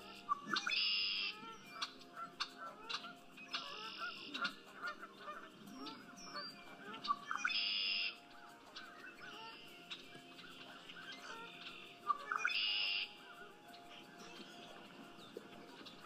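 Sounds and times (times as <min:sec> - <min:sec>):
bird buzzy trilled song: 0:00.0 - 0:16.0
bird chirps and calls: 0:00.0 - 0:16.0.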